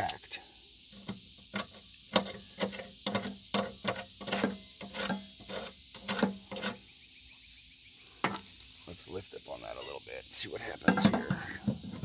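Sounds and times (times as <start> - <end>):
metal tool tapping steel plate: 1.0 - 6.8, 10.9 - 11.4.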